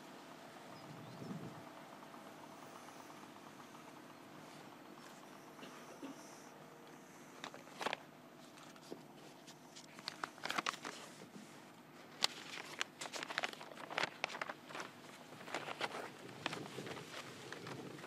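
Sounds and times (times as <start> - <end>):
handling noise rustling and clicks: 7.3 - 18.0.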